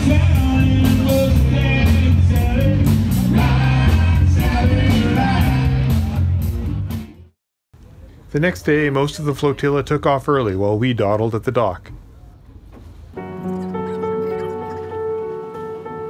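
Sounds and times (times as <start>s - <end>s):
person singing: 0.0s - 6.2s
live rock band: 0.0s - 7.1s.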